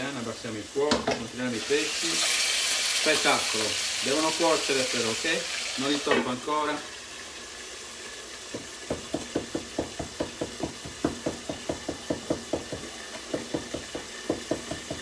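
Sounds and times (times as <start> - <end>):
frying sizzle: 0.0 - 15.0
knife chopping on cutting board: 8.5 - 15.0.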